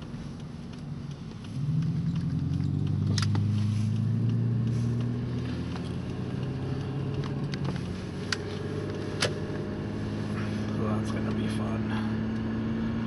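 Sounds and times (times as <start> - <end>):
sharp clicks: 0.0 - 9.4
car engine and road noise: 0.0 - 13.0.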